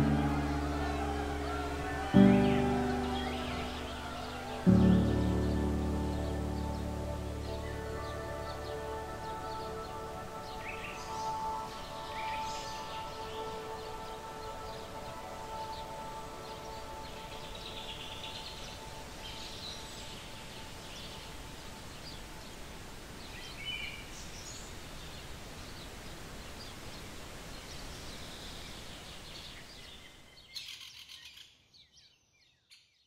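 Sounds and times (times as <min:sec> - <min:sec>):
held music chord: 0:00.0 - 0:20.2
outdoor background hiss: 0:00.0 - 0:32.0
wild birds chirping: 0:00.0 - 0:32.4.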